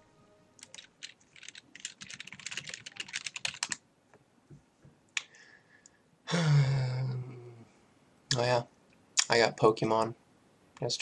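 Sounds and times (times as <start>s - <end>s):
computer keyboard typing: 0.6s - 3.8s.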